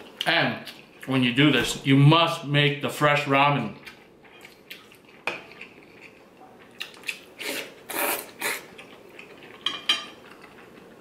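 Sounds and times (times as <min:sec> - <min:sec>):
person slurping noodles: 0:07.4 - 0:08.7.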